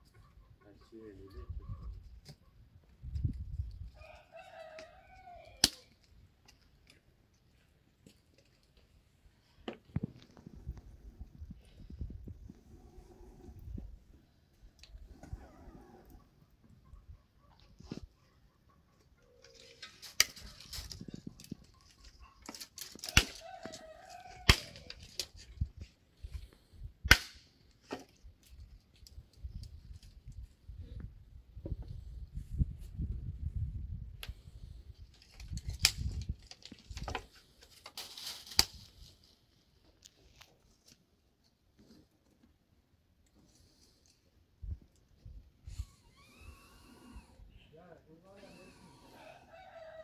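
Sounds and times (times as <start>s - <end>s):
rooster crowing: 4.0s - 5.8s, 23.1s - 24.9s, 48.9s - 50.0s
loud sharp cracks: 27.1s - 27.5s.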